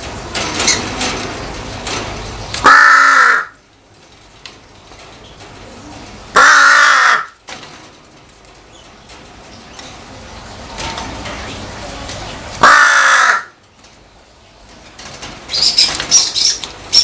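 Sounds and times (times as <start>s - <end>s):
crow cawing: 2.6s - 3.6s, 6.4s - 7.4s, 12.6s - 13.6s.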